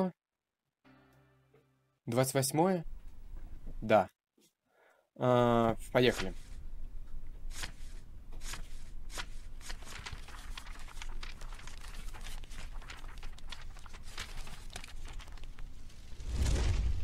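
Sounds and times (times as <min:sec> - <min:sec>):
paper crinkling: 0:07.4 - 0:16.8.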